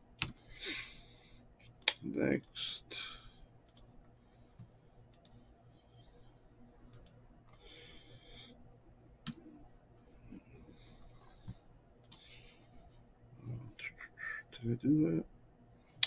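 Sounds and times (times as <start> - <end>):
computer mouse clicking: 3.6 - 3.9, 4.5 - 5.4, 6.8 - 7.2.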